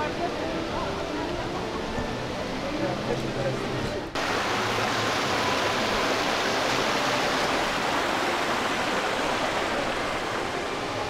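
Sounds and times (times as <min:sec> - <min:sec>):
fountain water splashing: 0:02.4 - 0:11.0.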